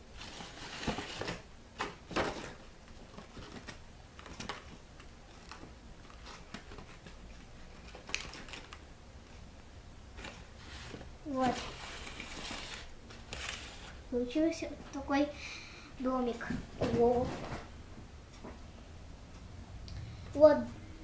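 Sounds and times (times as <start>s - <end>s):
paper rustling: 0.2s - 8.8s, 10.1s - 14.0s.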